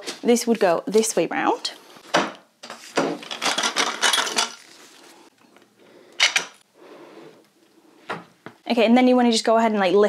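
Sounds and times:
paper roll rattling on metal stand: 3.2s - 4.7s.

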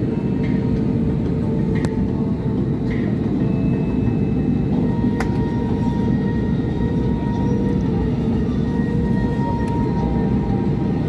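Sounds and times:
jet engine rumble in cabin: 0.0s - 11.0s.

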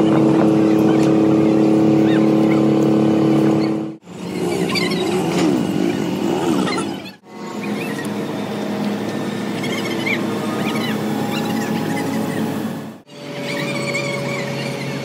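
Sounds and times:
machine with wavering pitch: 0.0s - 5.2s, 6.6s - 15.0s
engine running steadily: 0.0s - 15.0s
birds chirping: 9.4s - 12.6s.

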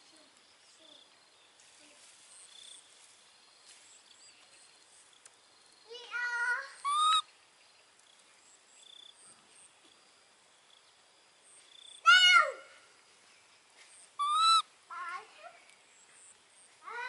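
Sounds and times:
baby monkey cooing: 6.7s - 7.3s, 14.2s - 14.7s.

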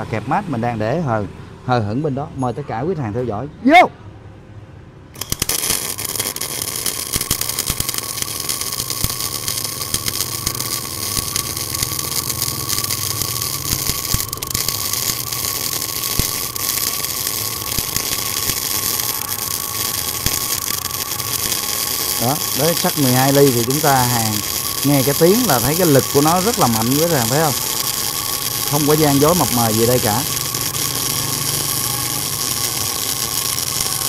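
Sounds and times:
welding arc spatter crackle: 5.1s - 34.0s.

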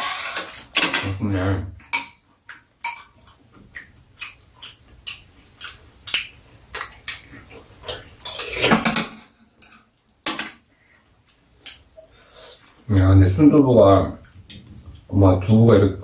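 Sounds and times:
eating noise: 1.8s - 8.9s.

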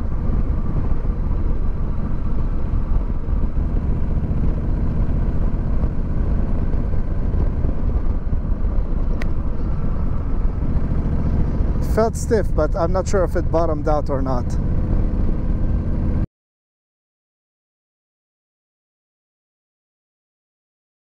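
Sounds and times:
motorcycle engine running: 0.0s - 16.2s
wind noise: 0.0s - 16.2s.

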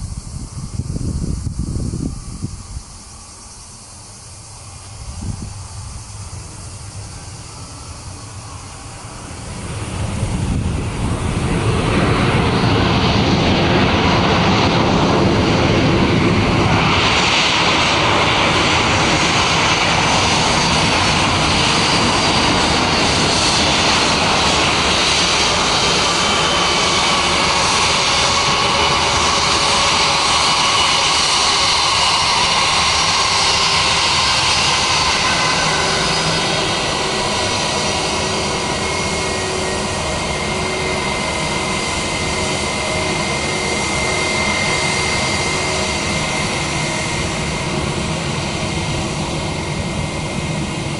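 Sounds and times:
high jet whine: 0.0s - 50.9s
jet engine rumble: 0.0s - 50.9s.

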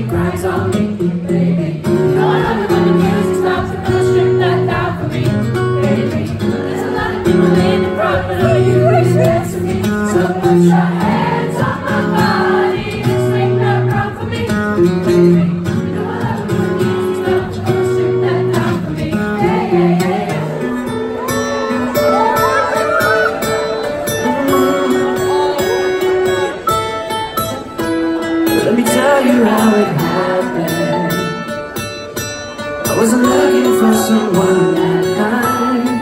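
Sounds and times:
strummed acoustic guitar: 0.0s - 36.0s
man singing into a microphone: 24.0s - 25.8s, 28.5s - 31.5s, 32.8s - 36.0s.

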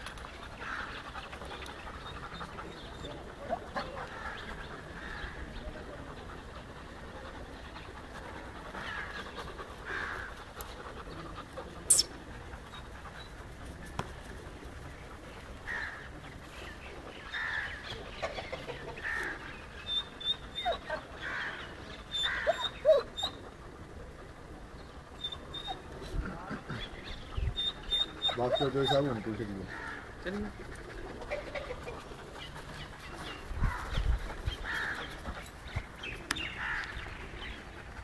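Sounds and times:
animal calls: 0.4s - 13.2s
small high chirps: 11.9s - 12.2s.

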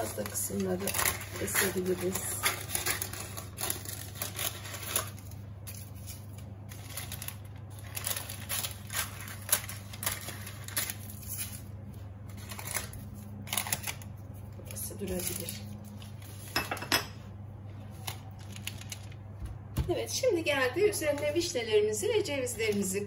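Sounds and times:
paper crinkling and rustling: 0.0s - 16.6s, 17.7s - 19.4s.

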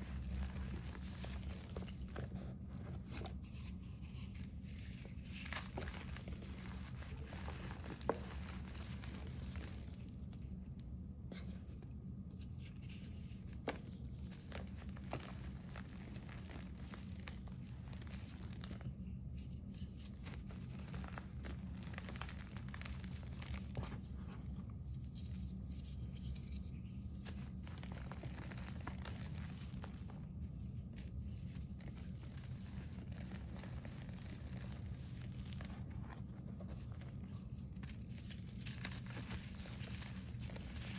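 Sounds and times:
hands crumbling chalk: 0.0s - 40.9s.

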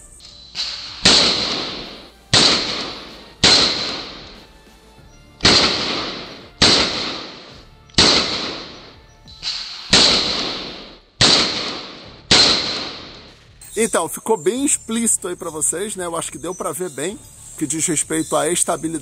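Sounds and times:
pistol shots: 0.6s - 4.5s, 5.4s - 13.4s.

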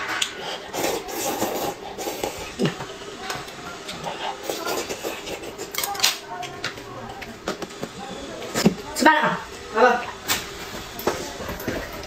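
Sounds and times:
noodles being slurped: 0.1s - 6.2s.

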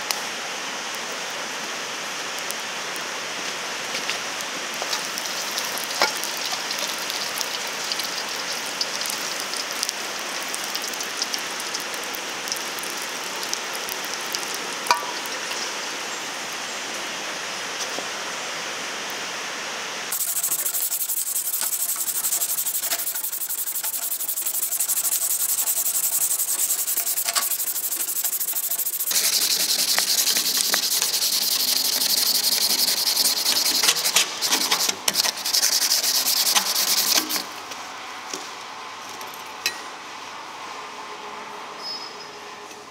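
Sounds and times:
blade sizzling in oil: 4.8s - 15.6s, 20.1s - 37.5s
sandpaper rubbing on metal: 20.1s - 37.4s.

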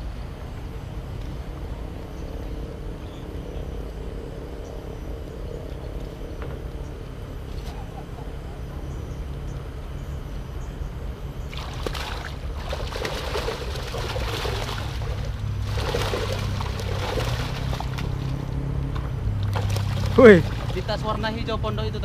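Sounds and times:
steady low hum: 0.0s - 22.0s
water splashing and sloshing: 11.4s - 21.2s.

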